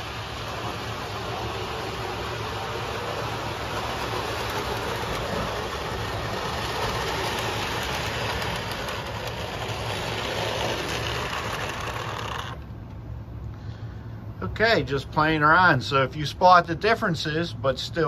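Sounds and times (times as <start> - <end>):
model trains clattering on track: 0.0 - 12.6.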